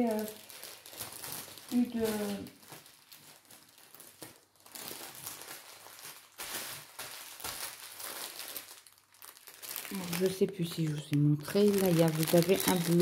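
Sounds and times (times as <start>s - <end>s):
packaging crinkling: 0.0s - 13.0s.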